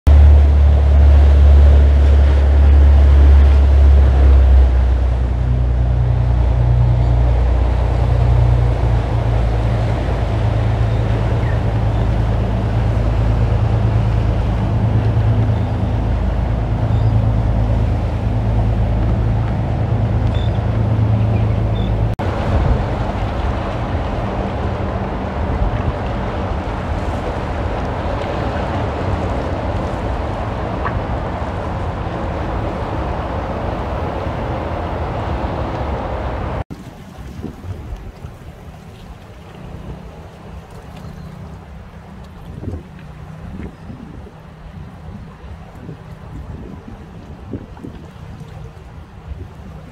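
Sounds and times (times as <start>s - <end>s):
boat engines droning: 0.1s - 49.9s
surf breaking over rocks: 22.0s - 49.9s.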